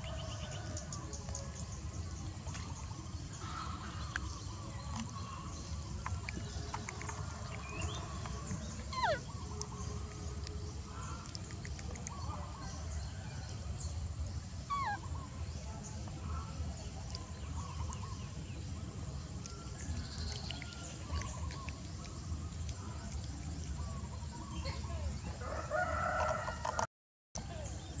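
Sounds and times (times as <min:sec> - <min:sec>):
squeaky animal calls: 0:08.8 - 0:09.6, 0:14.7 - 0:15.1.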